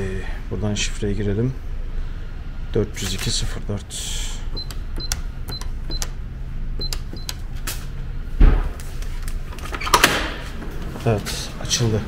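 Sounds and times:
keypad lock beeps: 4.5 - 6.2, 6.8 - 7.4
thud: 8.4 - 8.8.

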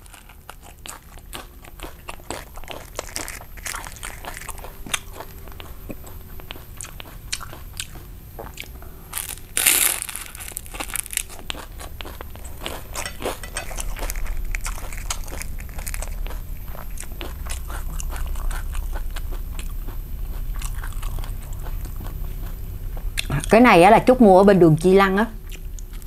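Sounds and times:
wet chewing with clicks: 0.0 - 9.4, 10.5 - 23.6, 25.4 - 26.0
loud crunch of crisp bite: 7.0 - 19.7.

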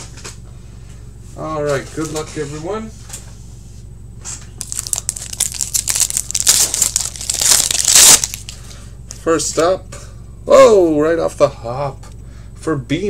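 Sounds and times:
foil wrapper tearing and crinkling: 4.6 - 8.6.

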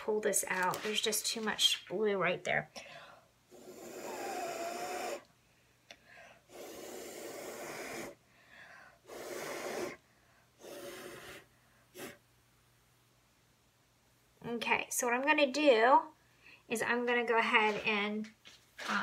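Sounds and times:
person blowing through pursed lips: 3.5 - 5.3, 6.2 - 12.2.

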